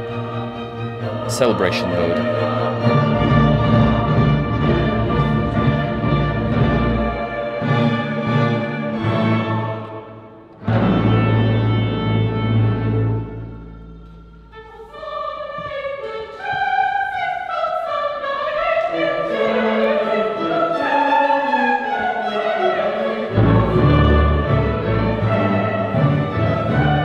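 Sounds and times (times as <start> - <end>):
orchestra playing classical music: 0.0 - 17.0, 17.6 - 27.0.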